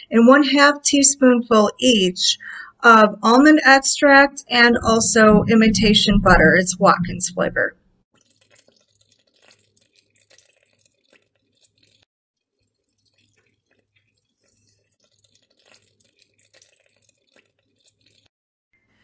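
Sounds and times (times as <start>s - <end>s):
low hum: 4.5s - 7.9s.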